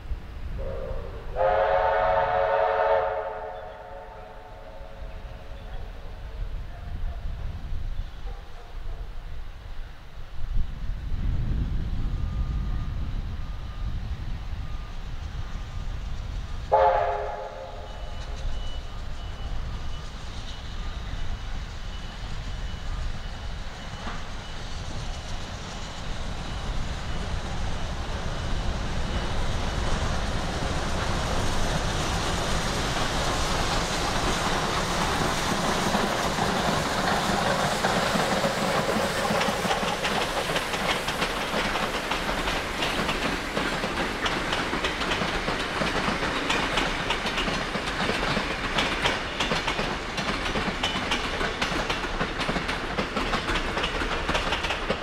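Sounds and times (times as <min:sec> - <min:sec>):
train approaching: 0:00.0 - 0:55.0
train whistle: 0:00.6 - 0:05.8, 0:16.7 - 0:19.7
train wheels clacking on bridge: 0:14.6 - 0:55.0.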